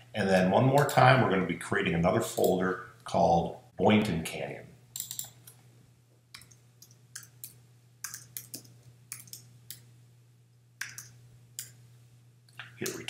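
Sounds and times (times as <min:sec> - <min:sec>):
faint low hum: 0:00.0 - 0:13.0
keyboard keystrokes clicking: 0:08.0 - 0:09.8, 0:10.8 - 0:11.7.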